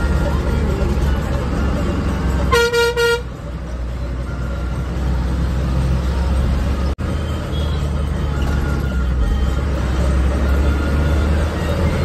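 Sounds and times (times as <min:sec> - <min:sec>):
bus engine drone: 0:00.0 - 0:12.0
road noise: 0:00.0 - 0:12.0
vehicle horn tooting: 0:02.5 - 0:03.4.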